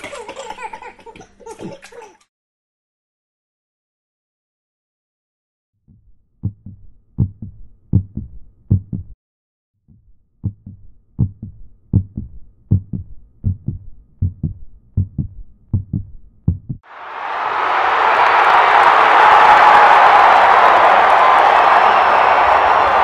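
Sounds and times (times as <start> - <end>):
heartbeat double thump: 5.9 - 9.2, 9.9 - 16.8.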